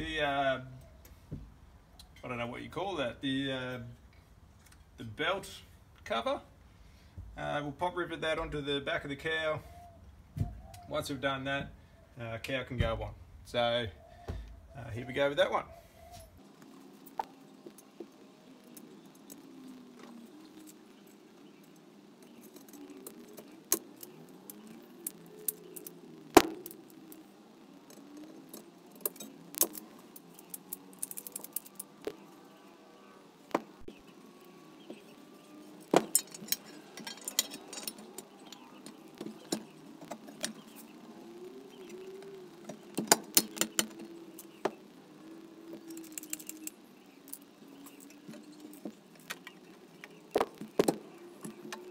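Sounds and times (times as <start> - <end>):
metal parts clinking: 29.0 - 32.0, 35.7 - 39.0, 45.8 - 48.8.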